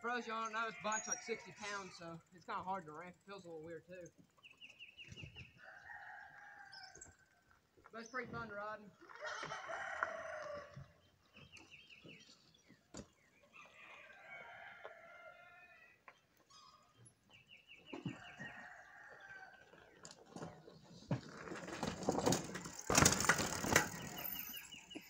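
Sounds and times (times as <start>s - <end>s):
faint rooster crowing: 5.6s - 7.4s, 9.1s - 11.0s, 13.5s - 16.8s, 18.1s - 19.9s
bike riding over dirt: 17.3s - 25.0s.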